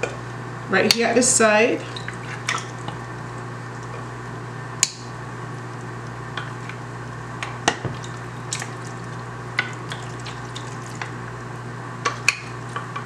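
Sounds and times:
steady low hum: 0.0 - 13.0
soft wet stirring: 1.8 - 4.1, 7.8 - 11.4.

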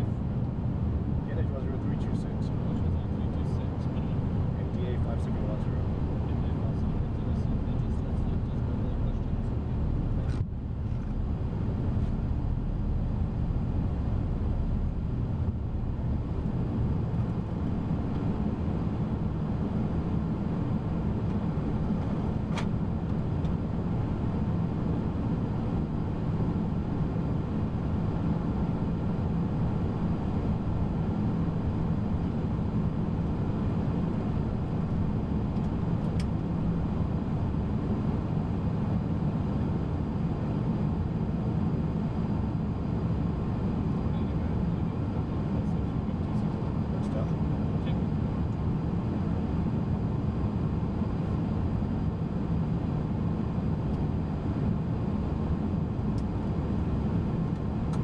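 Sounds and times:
engines and air conditioning rumble: 0.0 - 58.0.

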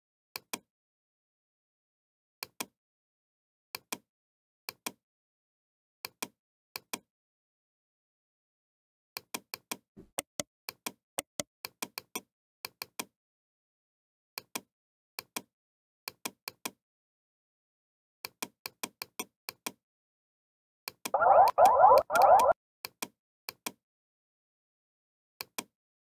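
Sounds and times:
computer mouse clicking: 21.1 - 22.6.

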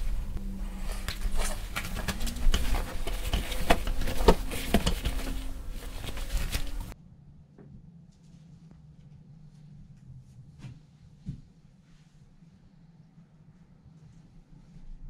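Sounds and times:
wet cloth handled by gloved hands: 0.0 - 7.0.

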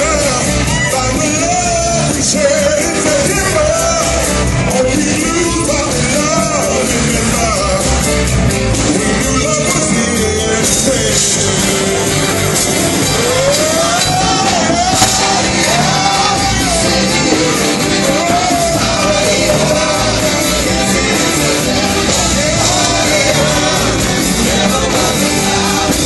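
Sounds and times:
live rock band with violins: 0.0 - 26.0
person singing sliding phrases: 13.2 - 26.0.

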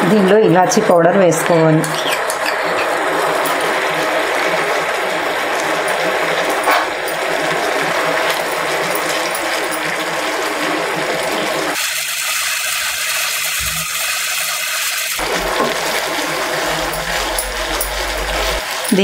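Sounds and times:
spoon scraping a pan: 1.9 - 3.7
syrup bubbling and sizzling in pan: 1.9 - 19.0.

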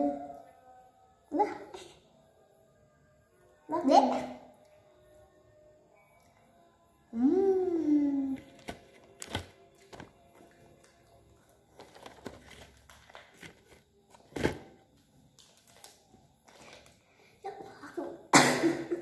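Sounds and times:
child's voice: 1.3 - 2.0, 3.7 - 4.5, 17.4 - 18.2
plastic packaging crinkling: 8.4 - 17.0.

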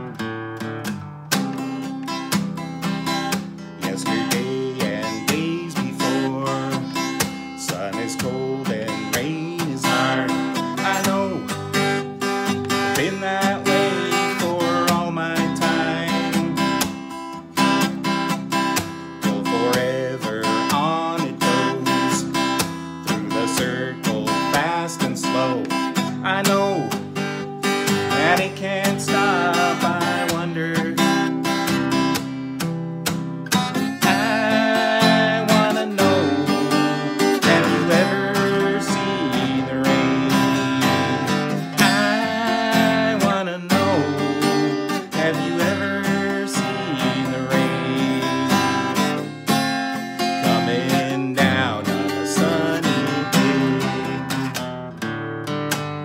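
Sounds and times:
acoustic guitar strumming: 0.0 - 56.0
man singing: 3.8 - 17.8, 18.9 - 32.1, 33.6 - 54.7.

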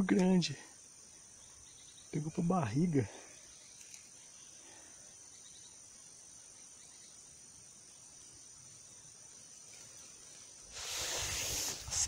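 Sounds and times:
faint insects trilling: 0.0 - 12.0.

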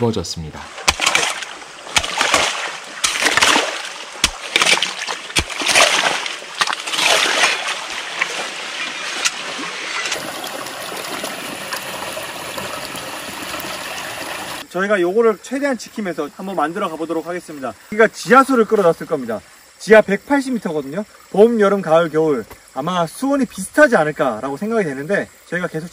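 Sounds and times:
water flowing: 0.4 - 14.7
water splashing: 0.6 - 14.7
shovel scraping wet mud: 0.7 - 10.2.

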